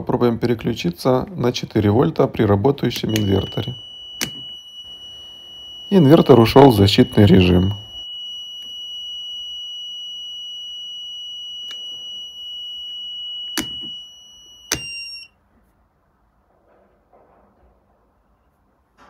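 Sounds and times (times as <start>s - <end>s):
rocker switches clicking: 2.9s - 4.4s, 13.6s - 13.9s, 14.7s - 14.9s
continuous high-pitched alarm beep: 3.0s - 15.4s.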